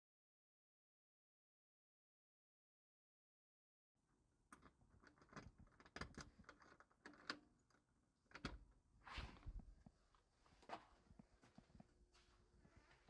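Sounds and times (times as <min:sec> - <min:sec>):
faint clicks and knocks: 0:04.5 - 0:08.8.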